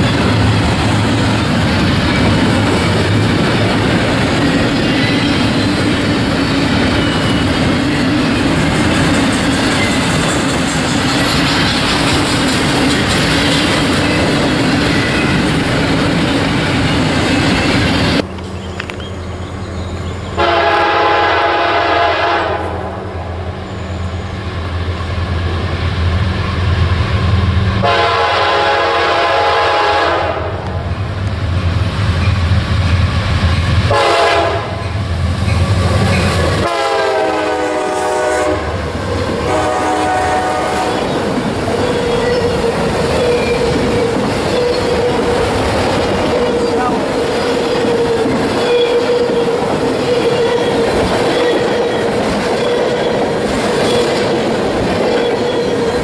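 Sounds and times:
clatter of rail cars: 0.0 - 22.9, 23.7 - 56.0
train horn blasts: 20.4 - 23.7, 27.8 - 30.8, 33.9 - 35.0, 36.6 - 38.8, 39.4 - 41.0.

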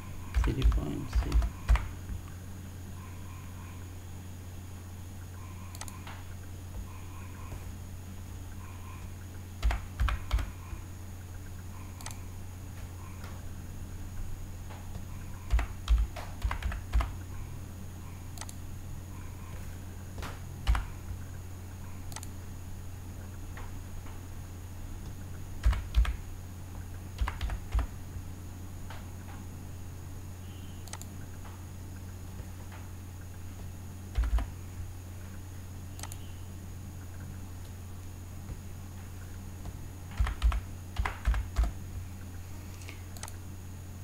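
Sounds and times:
keyboard typing: 0.2 - 2.0, 5.6 - 7.7, 9.6 - 10.7, 12.0 - 12.3, 14.9 - 17.2, 19.5 - 21.0, 25.0 - 26.2, 27.2 - 28.0, 30.8 - 31.1, 34.1 - 34.5, 36.0 - 36.2, 39.6 - 41.8.

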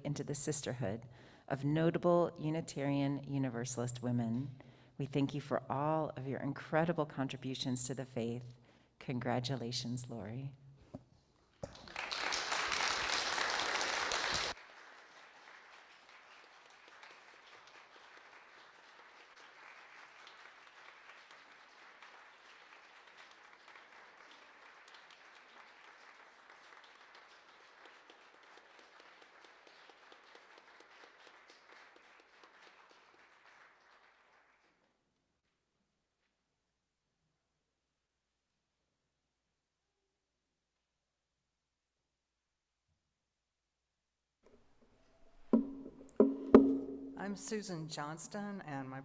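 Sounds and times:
crowd applauding: 11.6 - 34.9.

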